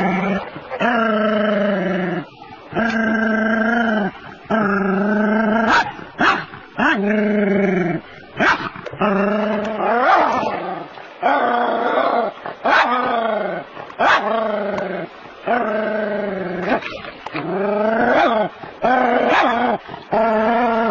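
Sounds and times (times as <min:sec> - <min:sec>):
small dog barking: 0:05.7 - 0:06.5, 0:14.0 - 0:14.3.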